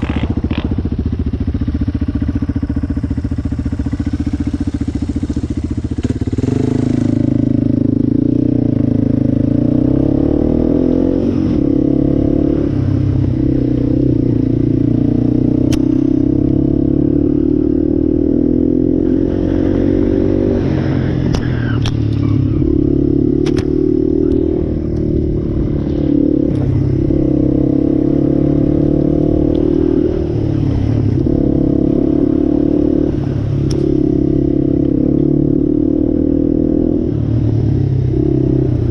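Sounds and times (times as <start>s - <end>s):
quad bike engine running: 0.0s - 11.1s.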